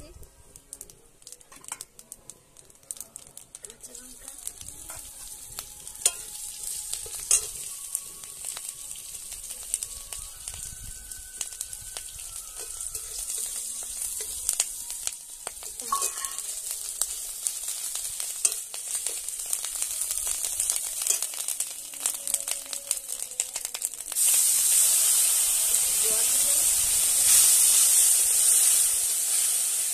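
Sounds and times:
chillies sizzling and popping in oil: 0:00.0 - 0:29.9
metal spatula scraping: 0:04.8 - 0:07.9, 0:12.6 - 0:14.6, 0:15.6 - 0:16.6.

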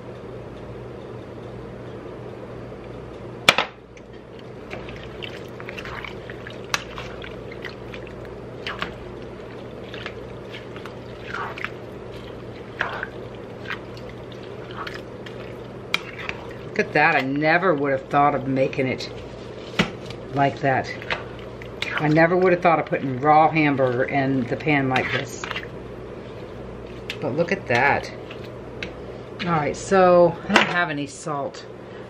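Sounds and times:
spoon stirring food in water: 0:04.0 - 0:29.7
spoon scraping pan: 0:09.9 - 0:17.6, 0:20.8 - 0:28.5.

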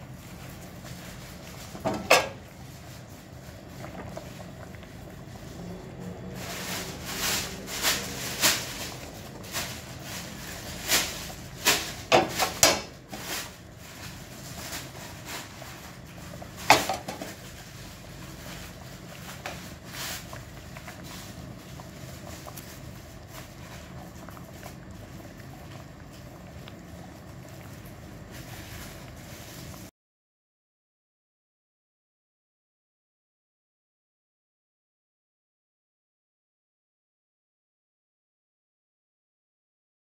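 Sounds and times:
broth simmering in a pan: 0:00.0 - 0:29.9
steady low hum: 0:00.0 - 0:29.9.

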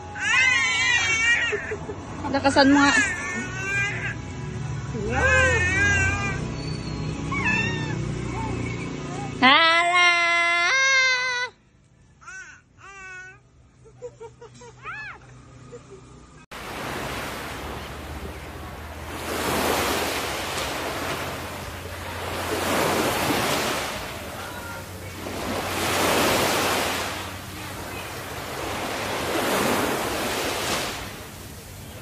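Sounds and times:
ocean waves washing in: 0:16.5 - 0:32.0.

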